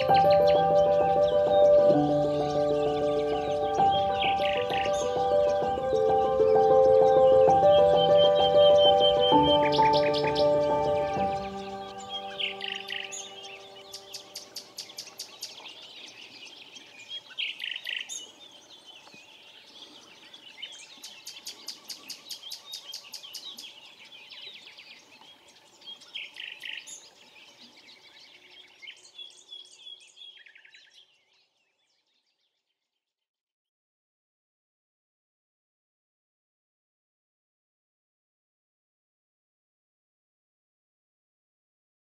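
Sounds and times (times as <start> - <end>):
held musical chord: 0.0 - 14.4
songbirds singing: 0.0 - 33.1.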